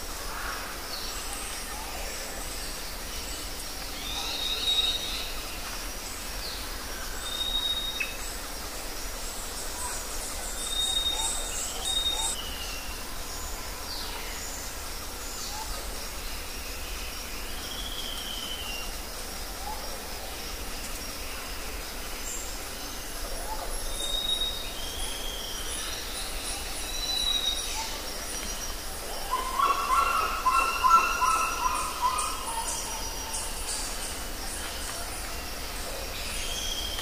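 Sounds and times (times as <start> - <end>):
steady background hiss: 0.0 - 37.0
rapid repeated lower bird calls: 23.6 - 37.0
whistled gliding bird calls: 29.2 - 34.0.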